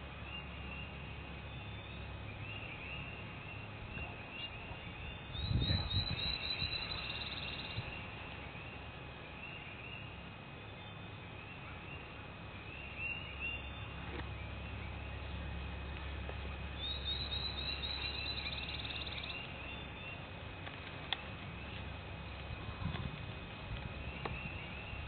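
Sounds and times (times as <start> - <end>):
songbirds chirping: 0.0 - 25.0
steady low rumble: 0.0 - 25.0
high bird trill: 4.0 - 8.4, 16.8 - 20.2.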